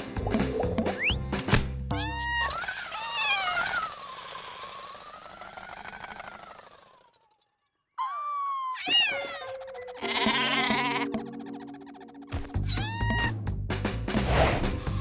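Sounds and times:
cartoon voice whimpering: 0:01.9 - 0:03.9, 0:08.0 - 0:11.2, 0:12.6 - 0:13.4
cartoon truck motor puttering: 0:01.9 - 0:07.8.

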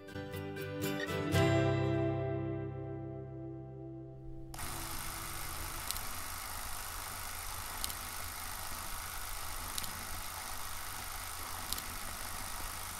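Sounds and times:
film projector whirring: 0:04.3 - 0:12.9.

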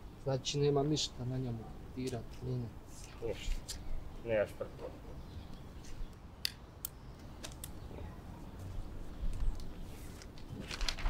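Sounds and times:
pen clicks: 0:06.4 - 0:07.8
paper rustling: 0:09.3 - 0:11.0.

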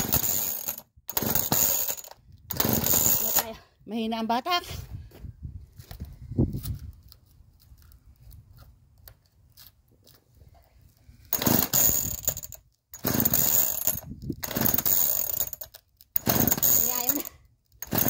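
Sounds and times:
chainsaw engine turning over: 0:00.0 - 0:03.6, 0:11.3 - 0:18.0
chainsaw recoil starter pulls: 0:00.0 - 0:03.6, 0:11.3 - 0:18.0.

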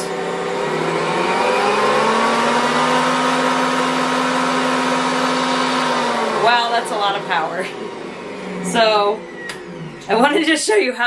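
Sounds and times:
stand mixer motor humming: 0:00.0 - 0:10.6.

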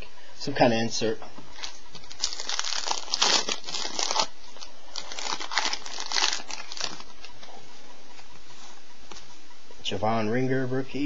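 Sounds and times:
plastic wrapper crinkling: 0:01.5 - 0:07.5.

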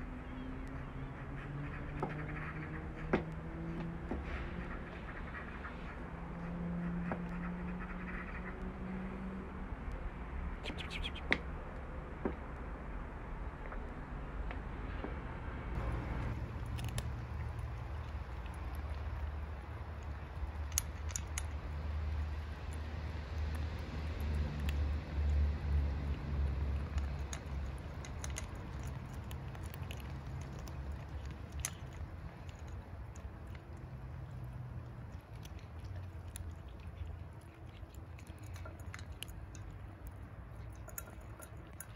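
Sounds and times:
steady low rumble: 0:09.7 - 0:41.9
cats crunching dry kibble: 0:15.8 - 0:41.9.

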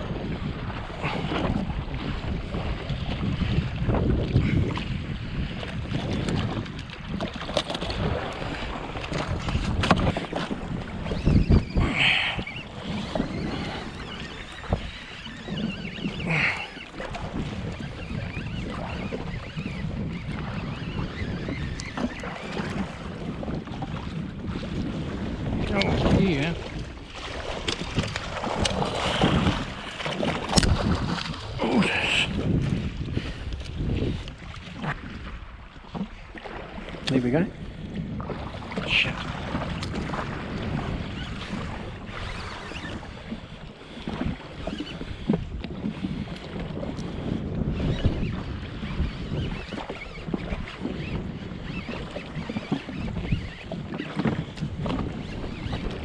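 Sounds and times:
water lapping against hull: 0:00.0 - 0:56.0
wind buffeting microphone: 0:00.0 - 0:56.0.

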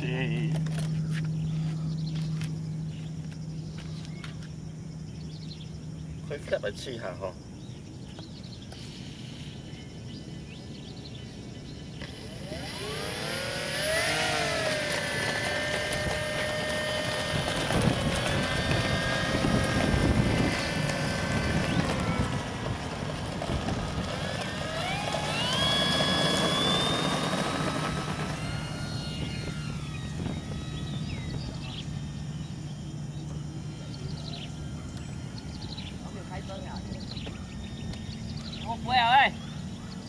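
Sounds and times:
model airplane motor whine: 0:00.0 - 0:40.0.

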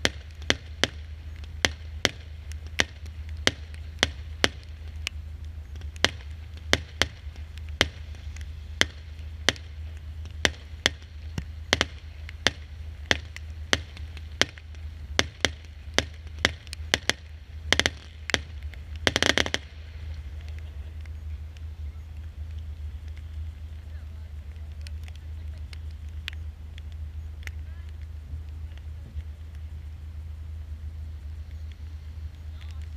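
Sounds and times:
firework cake firing: 0:00.0 - 0:32.9
steady low rumble: 0:00.0 - 0:32.9.

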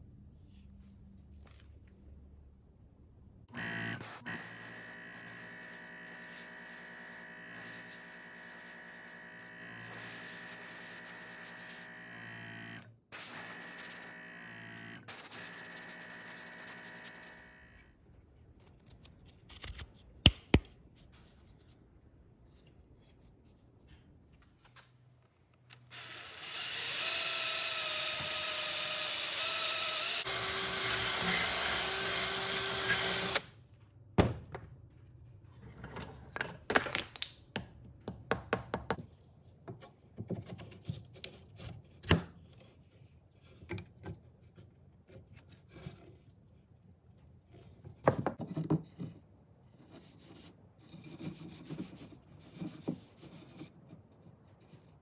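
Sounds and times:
power drill boring into wood: 0:25.9 - 0:33.4.

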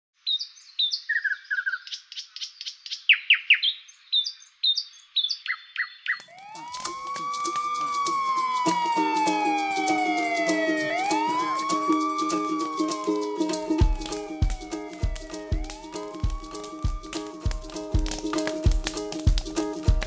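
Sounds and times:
bird chirps and tweets: 0:00.2 - 0:06.6
siren wailing: 0:06.2 - 0:18.6
rapid ticking: 0:06.4 - 0:20.0.

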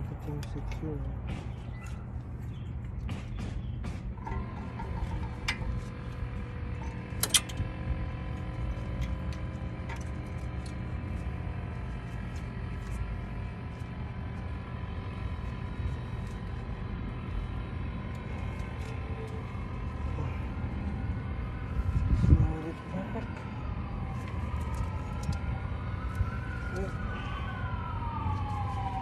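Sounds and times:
brake pad clips clicking: 0:06.8 - 0:07.6.

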